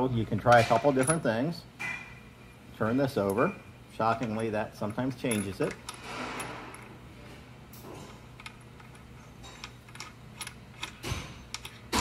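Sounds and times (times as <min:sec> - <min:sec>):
metallic clicks of small steel parts: 0:08.4 - 0:12.0.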